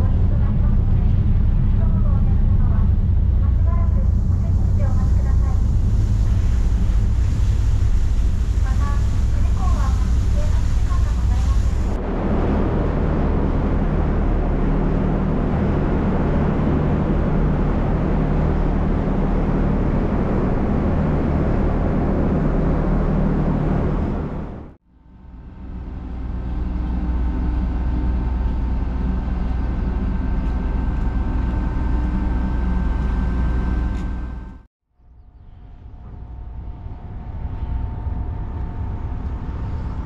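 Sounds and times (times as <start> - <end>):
ferry engine humming: 0.0 - 40.0
wind: 0.0 - 40.0
water rushing: 4.2 - 24.7.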